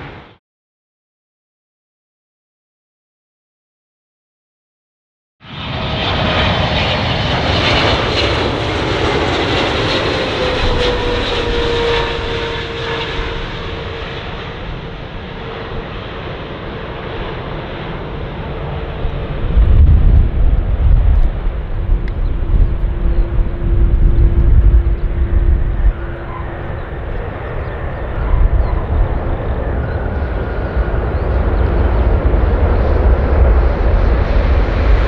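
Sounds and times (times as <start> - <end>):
jet engine roar: 0.0 - 0.4, 5.4 - 35.0
heavy low rumble: 18.8 - 35.0.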